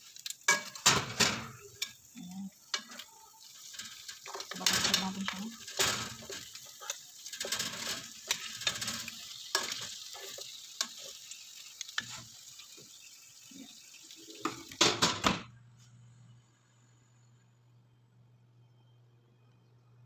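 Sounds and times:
meat sizzling in a metal pan: 0:00.0 - 0:15.4
oven humming: 0:00.0 - 0:20.0
oven rack clattering: 0:00.5 - 0:02.0, 0:02.7 - 0:10.9
metal tongs clicking and scraping: 0:02.7 - 0:11.0.

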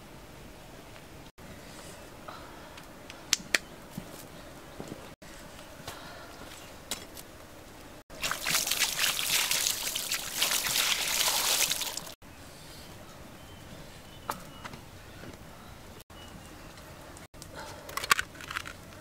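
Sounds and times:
water pouring and splashing: 0:08.1 - 0:12.2.

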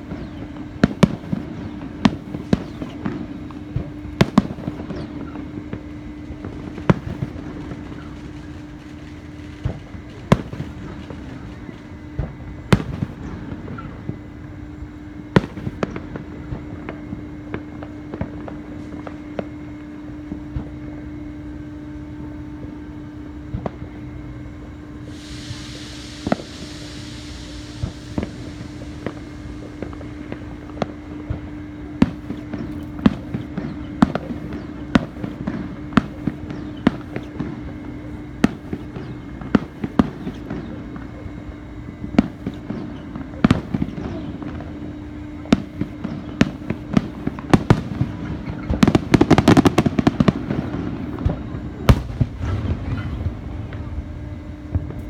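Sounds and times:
fireworks bangs and cracks: 0:00.0 - 0:21.0, 0:23.4 - 0:24.0, 0:24.8 - 0:55.0
steady low hum: 0:00.0 - 0:55.0
hiss: 0:25.0 - 0:33.6.

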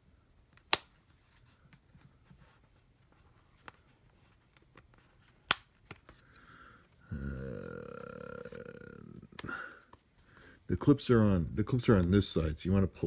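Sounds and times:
man's low drawn-out vocal sound: 0:07.1 - 0:09.4.

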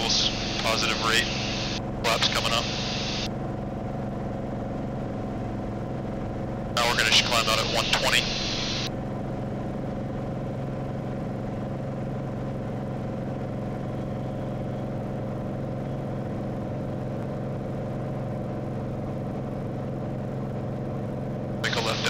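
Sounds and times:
propeller engine drone in cabin: 0:00.0 - 0:22.0.

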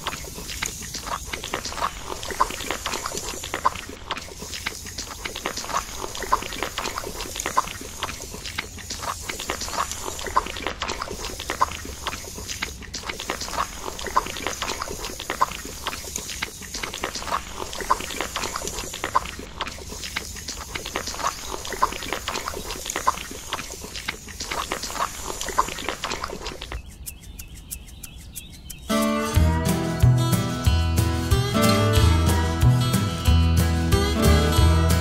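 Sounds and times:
hand rake scraping wet mud: 0:00.0 - 0:26.8
evenly spaced ticks: 0:00.0 - 0:29.4.

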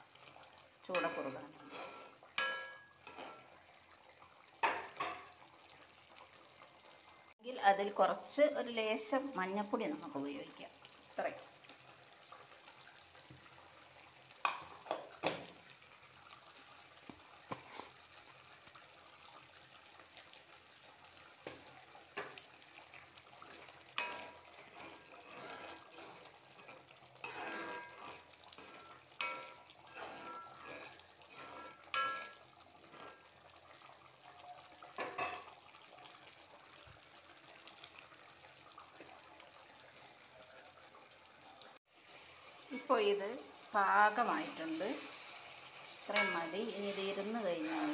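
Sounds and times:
sauce bubbling in a pan: 0:00.0 - 0:47.9
spoon knocking and scraping pan: 0:00.9 - 0:03.5, 0:04.6 - 0:05.4, 0:14.4 - 0:15.6, 0:17.1 - 0:18.0, 0:21.4 - 0:22.5, 0:23.6 - 0:33.3, 0:35.0 - 0:35.6, 0:46.1 - 0:47.9.

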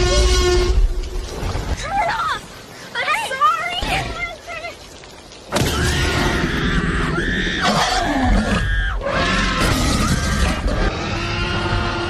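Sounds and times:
deep growling roar: 0:05.8 - 0:12.0.

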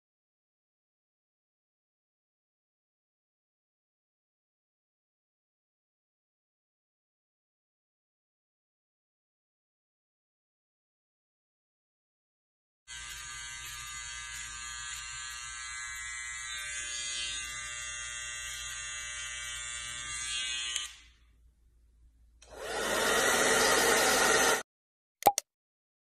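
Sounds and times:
hair trimmer buzzing: 0:12.9 - 0:21.2, 0:22.5 - 0:24.6.

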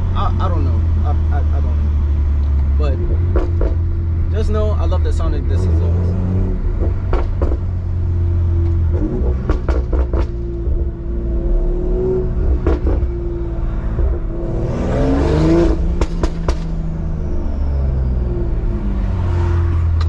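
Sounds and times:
car exhaust drone: 0:00.0 - 0:05.5, 0:06.1 - 0:20.0
exhaust pops and crackles: 0:02.4 - 0:04.0, 0:06.7 - 0:07.8, 0:08.6 - 0:10.9, 0:12.5 - 0:13.2, 0:15.7 - 0:16.8.

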